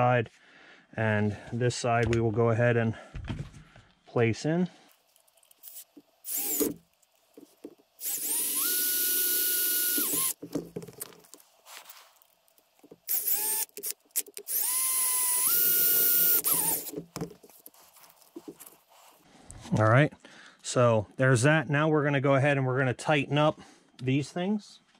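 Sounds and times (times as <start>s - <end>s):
cordless drill driving screws: 5.5s - 6.9s, 8.0s - 10.5s, 12.9s - 17.1s.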